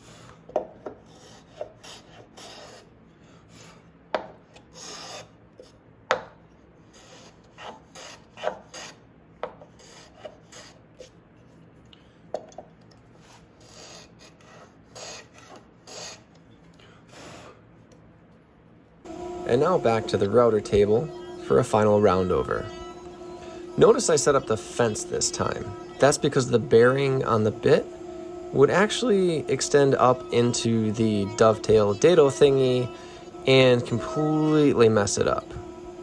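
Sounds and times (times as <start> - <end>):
hand plane scraping wood: 0.9 - 2.9, 4.5 - 5.3, 7.0 - 9.0.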